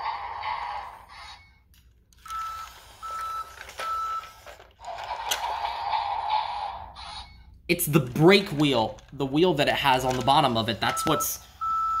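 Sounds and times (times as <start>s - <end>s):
toy engine whirring: 0.0s - 6.0s.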